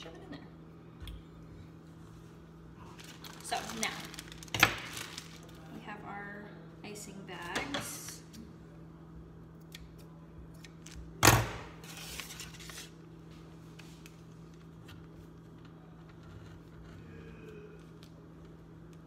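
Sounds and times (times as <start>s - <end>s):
low steady hum: 0.0s - 19.0s
piping bag crinkling: 2.8s - 5.8s.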